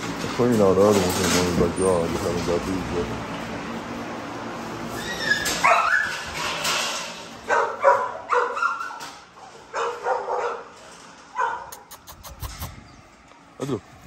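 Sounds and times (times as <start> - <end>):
dog barking and yipping: 5.2 - 6.2, 7.4 - 10.7, 11.3 - 12.7.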